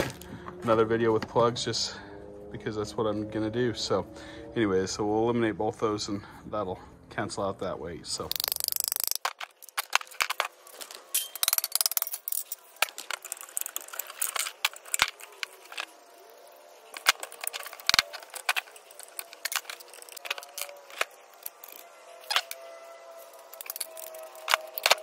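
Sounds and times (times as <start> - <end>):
metal clicks and clinks: 8.3 - 15.9.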